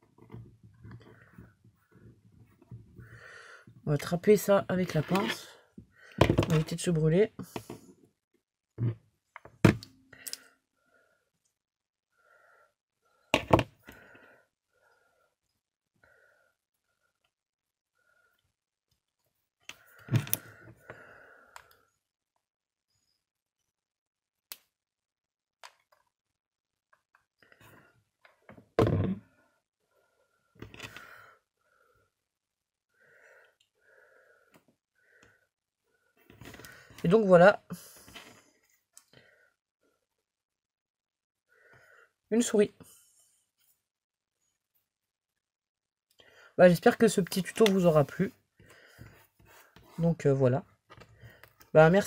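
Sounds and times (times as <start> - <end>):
knocks on craft table: 13.4 - 13.7.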